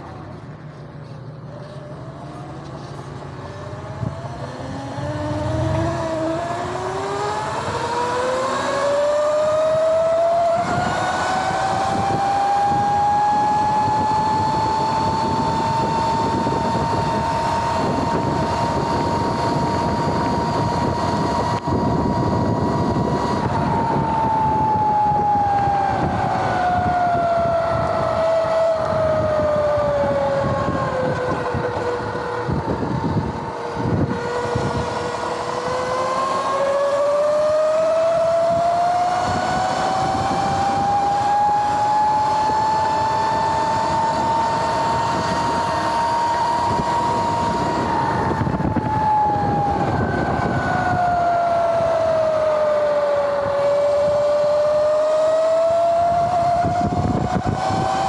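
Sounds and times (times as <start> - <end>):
wind: 0.0 - 58.0
electric dirt bike motor whining: 1.5 - 58.0.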